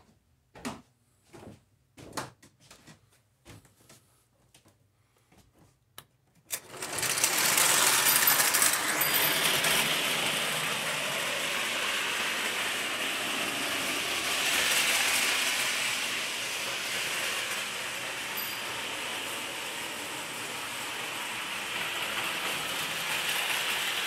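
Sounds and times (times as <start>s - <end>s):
clockwork motor whirring: 6.5s - 24.0s
metallic rattle of toy train: 6.5s - 24.0s.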